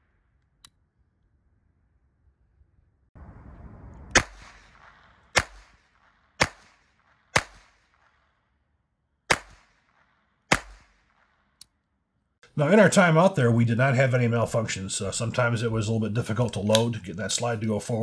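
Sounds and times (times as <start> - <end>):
pistol shots with echo: 4.1 - 8.3, 9.3 - 11.5.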